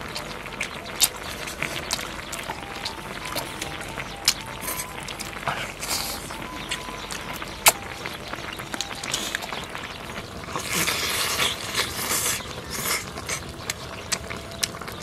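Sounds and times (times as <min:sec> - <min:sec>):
crunching and chewing food: 0:00.0 - 0:15.0
lip smacks: 0:00.1 - 0:09.7.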